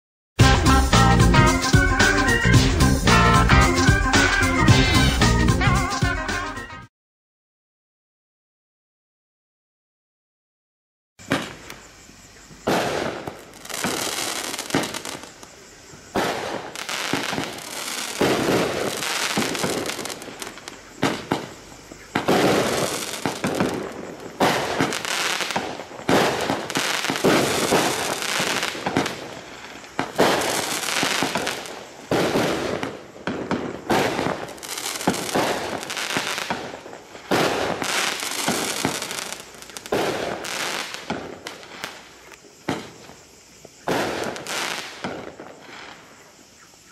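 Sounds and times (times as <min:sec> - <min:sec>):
fireworks cake firing shots: 0:11.2 - 0:11.8, 0:12.5 - 0:43.2, 0:43.8 - 0:46.0
crackling firework bursts: 0:11.2 - 0:46.9.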